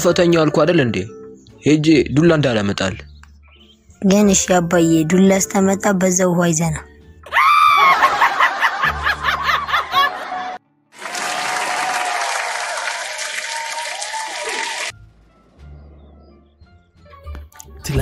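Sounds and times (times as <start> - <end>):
audience laughing: 7.8 - 11.8
audience applause: 9.8 - 14.9.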